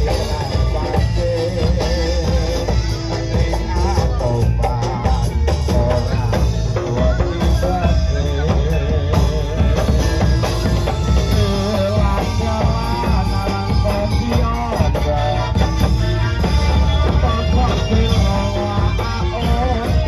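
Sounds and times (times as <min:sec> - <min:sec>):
drums keeping steady beat: 0:00.0 - 0:20.0.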